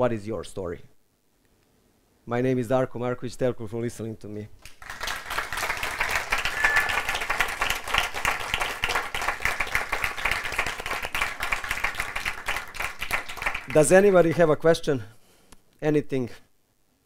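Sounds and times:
audience applauding: 0:04.6 - 0:13.9.

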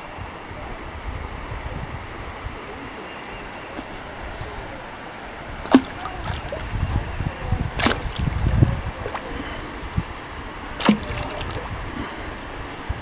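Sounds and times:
kayak paddle splashing water: 0:05.6 - 0:06.9, 0:07.8 - 0:09.6, 0:10.6 - 0:12.2.

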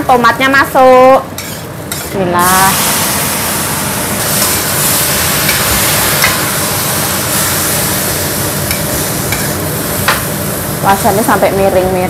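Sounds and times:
food sizzling in a wok: 0:00.0 - 0:12.0
metal spatula scraping a pan: 0:01.4 - 0:03.5.

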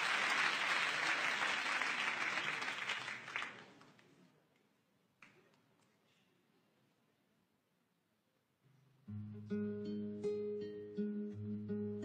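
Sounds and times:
audience applauding: 0:00.0 - 0:04.0.

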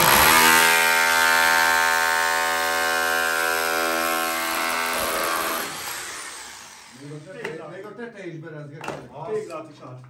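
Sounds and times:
rotary hammer chipping plaster: 0:00.0 - 0:06.2.

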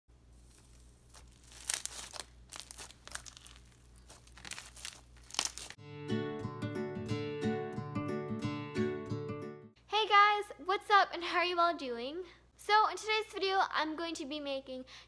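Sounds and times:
gold leaf crinkling in slime: 0:00.2 - 0:05.8
music: 0:05.8 - 0:09.8.

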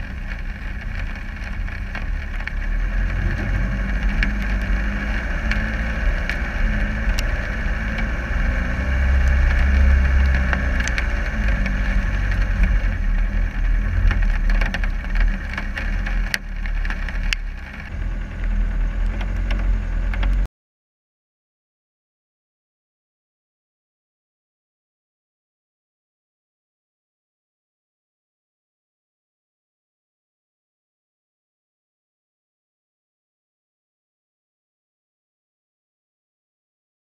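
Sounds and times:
diesel engine running under load: 0:00.0 - 0:20.5.

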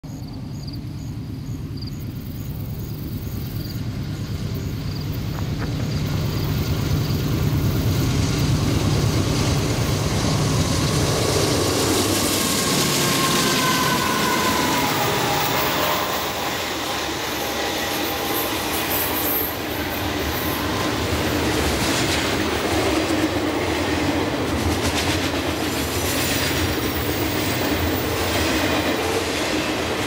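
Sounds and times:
diesel locomotive engine rumble: 0:00.0 - 0:30.0
train wheel and rail noise: 0:00.0 - 0:30.0
whining tone dropping in pitch: 0:12.8 - 0:16.8.

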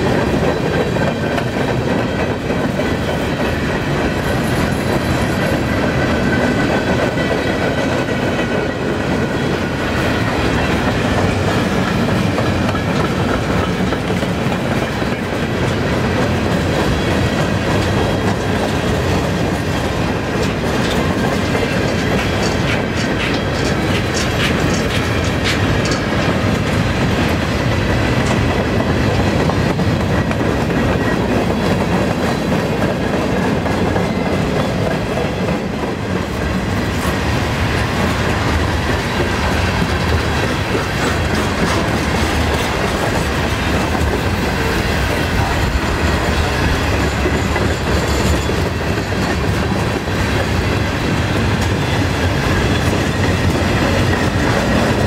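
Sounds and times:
freight train rumble: 0:00.0 - 0:55.0
steel wheels clacking over rail joints: 0:00.0 - 0:55.0.

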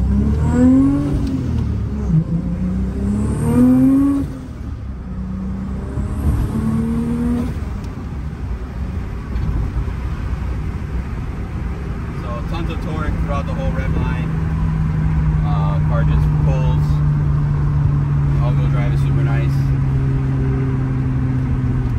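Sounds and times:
car engine accelerating: 0:00.0 - 0:21.9.

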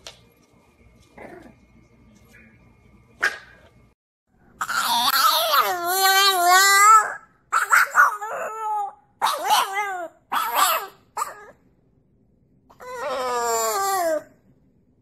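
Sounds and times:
puppy howling: 0:04.6 - 0:11.6, 0:12.7 - 0:14.4.

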